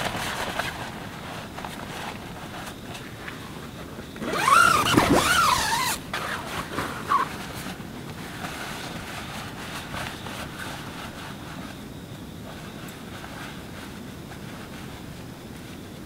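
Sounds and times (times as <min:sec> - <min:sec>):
tent fabric rustling: 0:00.0 - 0:15.8
steady outdoor hiss: 0:00.0 - 0:16.0
tent zipper pulled open: 0:04.2 - 0:07.6.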